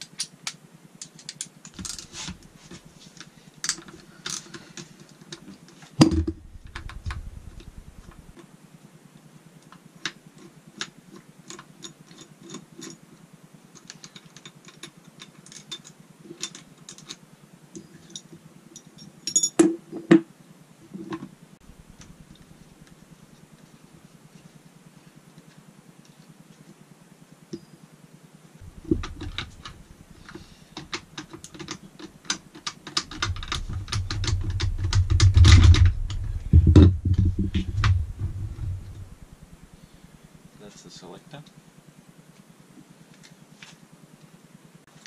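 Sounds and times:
brief low rumble: 6.0s - 8.3s, 28.6s - 30.4s, 33.4s - 39.8s
metallic clicks and clinks of tools: 13.8s - 19.7s
heavy knock: 33.4s - 39.2s.

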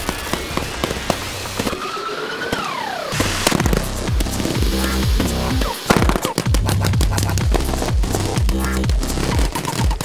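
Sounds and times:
electronic dance music: 3.6s - 10.0s.

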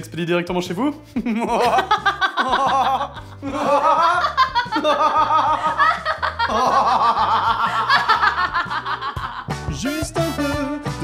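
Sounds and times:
background music with bass line: 0.0s - 11.0s
woman laughing hard: 1.2s - 9.5s.

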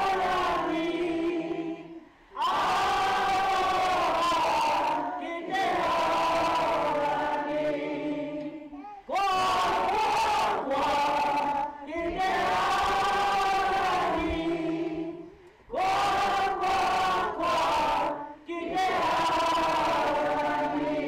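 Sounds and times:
group of voices singing in unison: 0.0s - 21.0s.

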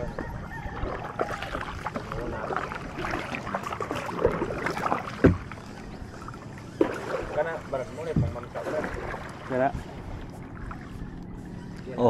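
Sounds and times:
water sloshing along hull: 0.0s - 12.0s.

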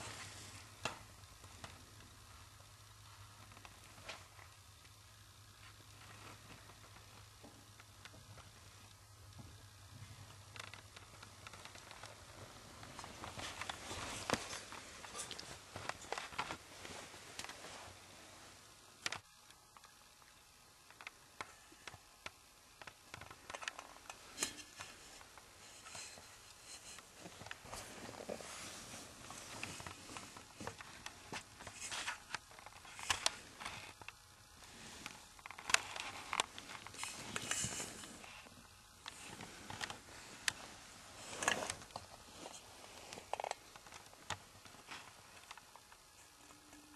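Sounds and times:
small clicks and knocks: 3.0s - 17.6s, 19.0s - 27.8s, 29.2s - 34.3s, 35.0s - 38.2s, 41.3s - 46.9s.

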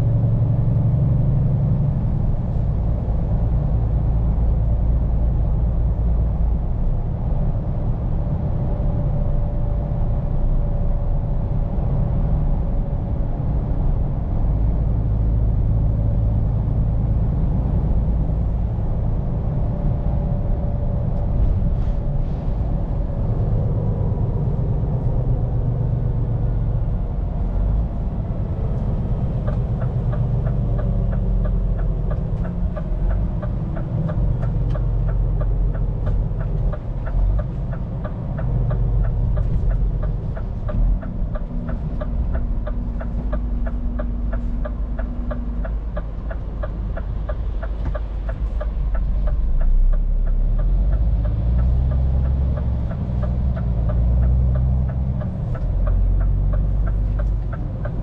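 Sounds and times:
diesel truck engine drone: 0.0s - 58.0s
turn signal ticking: 27.1s - 58.0s.

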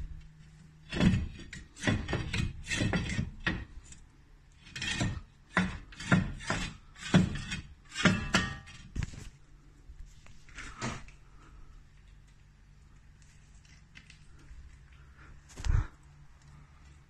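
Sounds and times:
worn tyre scraping: 0.0s - 9.3s.

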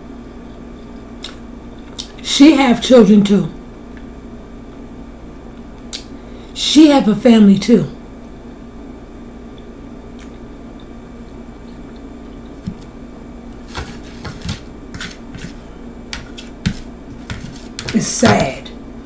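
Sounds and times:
low room hum: 0.0s - 19.0s
fork scraping metal platter: 13.6s - 18.5s.

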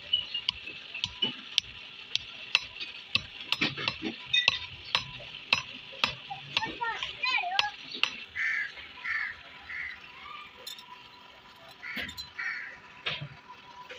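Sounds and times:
hammer striking hot steel on anvil: 0.4s - 8.3s.

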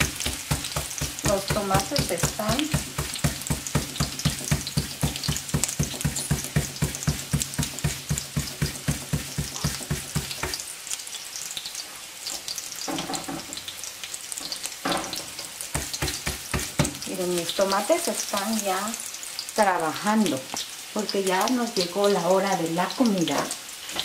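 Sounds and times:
hands patting dough flat: 0.0s - 10.6s, 15.7s - 17.1s
fat sizzling in a pan: 0.0s - 24.0s.

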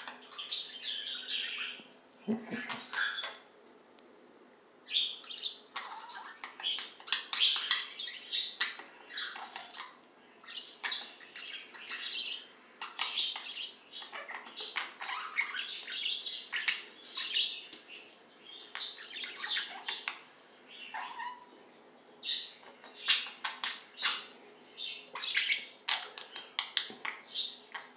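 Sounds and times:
budgerigars chattering and warbling: 2.5s - 3.4s, 4.9s - 17.6s, 18.6s - 21.5s, 24.9s - 27.9s.

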